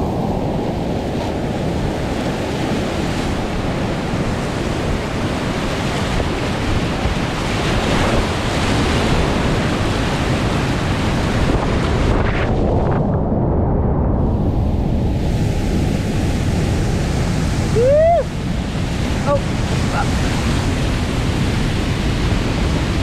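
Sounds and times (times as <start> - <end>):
wind buffeting microphone: 0.0 - 23.0
river rapids rushing: 16.8 - 23.0.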